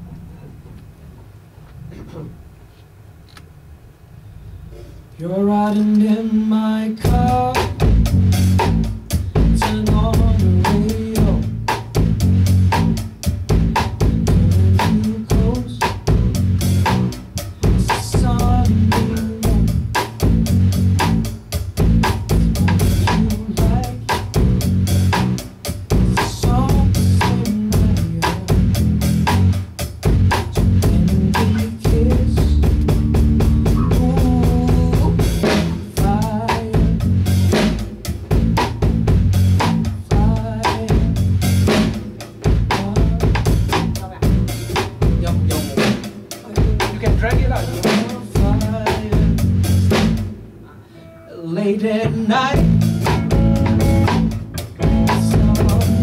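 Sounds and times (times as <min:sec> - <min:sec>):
drum kit beat: 0:07.0 - 0:50.6, 0:52.1 - 0:56.0
electric bass: 0:07.0 - 0:50.6, 0:51.9 - 0:56.0
electric guitar: 0:50.6 - 0:56.0.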